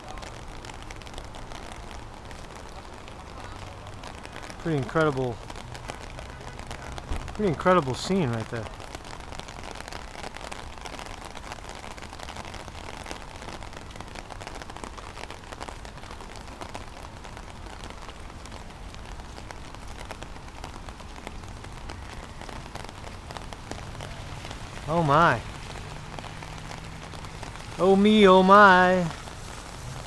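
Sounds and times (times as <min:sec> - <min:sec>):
steady rain falling: 0:00.0 - 0:30.0.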